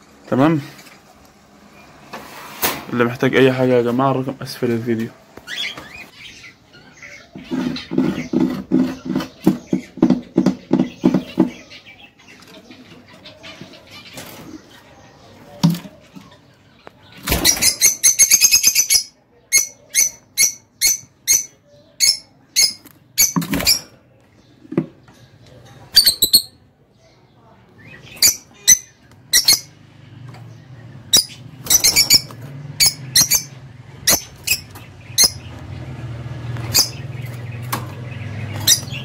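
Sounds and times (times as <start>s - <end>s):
birds chirping shrilly: 5.4s - 14.8s, 16.0s - 24.7s, 25.9s - 26.6s, 27.8s - 29.8s, 30.5s - 39.0s.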